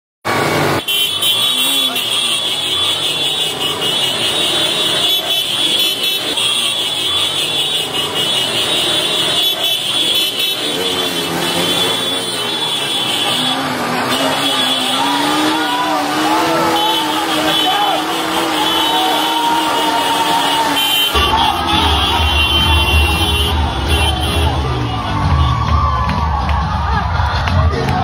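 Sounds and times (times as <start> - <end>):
motorcycles riding by: 0.3 - 28.0.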